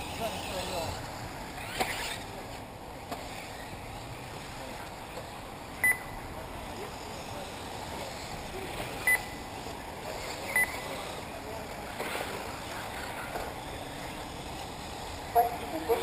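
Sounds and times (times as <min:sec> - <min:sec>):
outdoor noise: 0:00.0 - 0:16.0
short sharp electronic beeps: 0:05.8 - 0:06.2, 0:09.0 - 0:09.4, 0:10.5 - 0:10.9.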